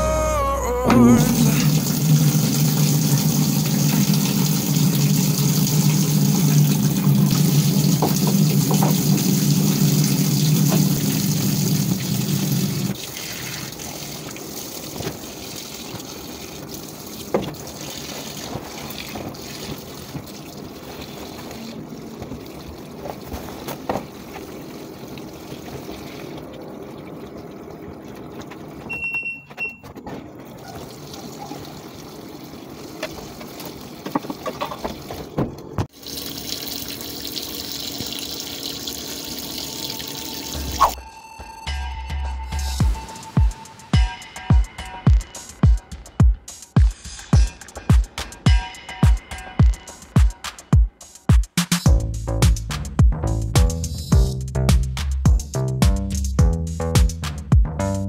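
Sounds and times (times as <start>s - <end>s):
water running into washing machine: 1.0s - 41.0s
short electronic beep: 28.9s - 29.9s.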